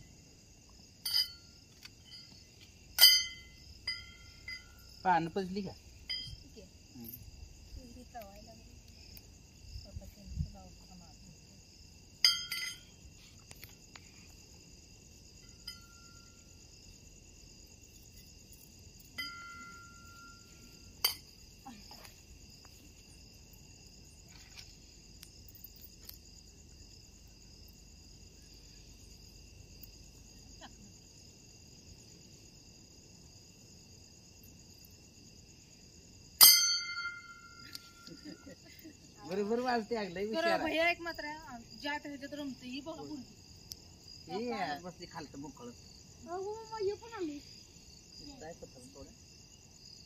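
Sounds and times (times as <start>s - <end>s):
crickets chirping: 0.0s - 50.0s
faint metallic rings and clinks: 0.9s - 5.1s, 5.9s - 7.3s, 12.2s - 13.6s, 15.3s - 16.8s, 17.9s - 22.2s, 36.4s - 38.9s.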